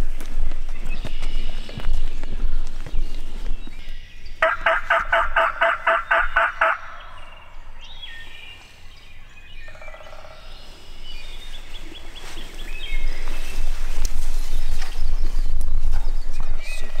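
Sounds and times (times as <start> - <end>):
faint songbird chirps: 0.0 - 4.6, 5.8 - 17.0
turkey yelping: 4.4 - 7.4.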